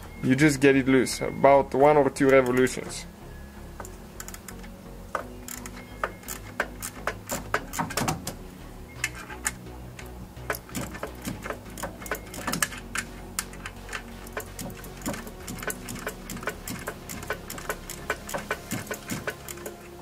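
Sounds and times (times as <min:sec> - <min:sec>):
ratchet wrench clicking: 0:03.8 - 0:08.4, 0:09.0 - 0:20.0.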